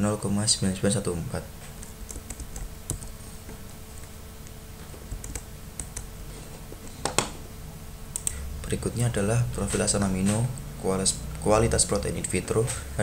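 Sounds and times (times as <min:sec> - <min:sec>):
faint steady hum: 0:00.0 - 0:13.0
computer keyboard clicks: 0:01.8 - 0:03.1, 0:05.1 - 0:06.1.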